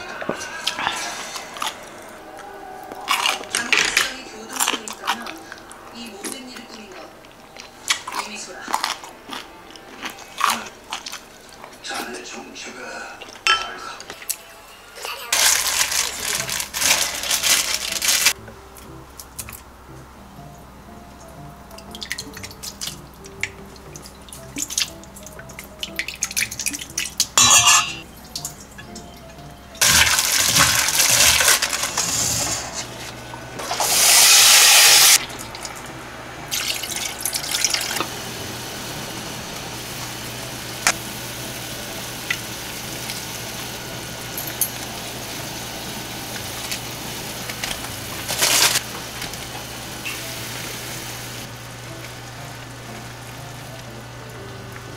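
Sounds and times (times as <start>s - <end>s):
utensils clinking against pot: 13.4s - 14.4s, 26.2s - 34.0s, 44.2s - 45.0s
water pouring into a pan: 29.8s - 32.3s, 36.5s - 38.0s.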